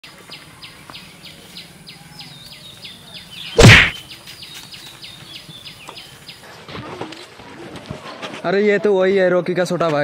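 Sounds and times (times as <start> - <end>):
loud whoosh: 3.6 - 4.0.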